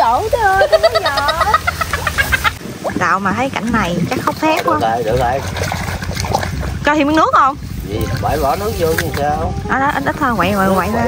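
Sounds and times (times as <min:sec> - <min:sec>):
person laughing: 0:00.6 - 0:02.6.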